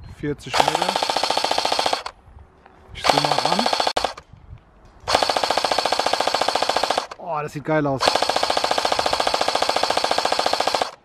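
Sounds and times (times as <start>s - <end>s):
airsoft machine gun firing: 0.5s - 2.1s, 3.0s - 4.2s, 5.1s - 7.2s, 8.0s - 11.0s.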